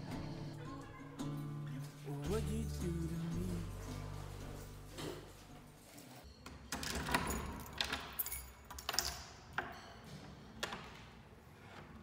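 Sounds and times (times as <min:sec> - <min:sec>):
key turning in door lock: 0:06.8 - 0:09.4
keys jangling: 0:07.0 - 0:09.4.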